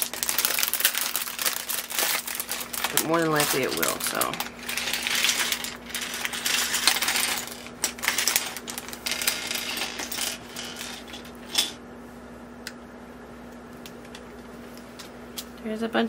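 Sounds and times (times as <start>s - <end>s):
plastic pieces clattering on table: 0.0s - 11.8s.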